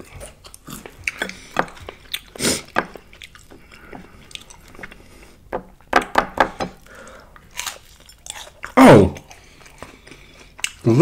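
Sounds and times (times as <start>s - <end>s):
wet chewing: 0.0s - 5.9s, 6.8s - 10.9s
crisp food crunches: 7.4s - 10.9s.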